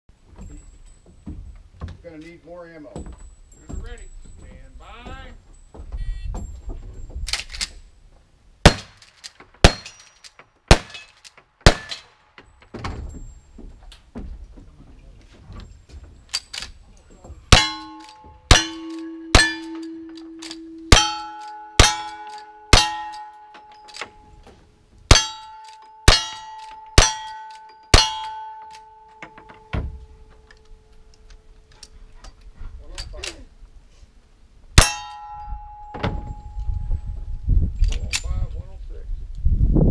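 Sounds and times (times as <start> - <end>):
gunshots: 8.6 - 10.0, 10.7 - 12.2
steel plate clanging: 8.7 - 13.5, 17.3 - 33.3, 34.8 - 37.1.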